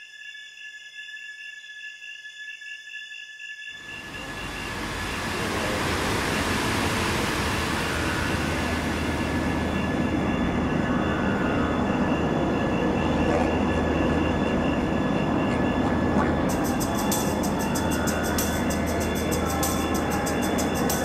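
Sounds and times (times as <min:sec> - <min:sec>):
faint high whistling tones: 0:00.0 - 0:21.0
steady rushing rumble: 0:03.8 - 0:21.0.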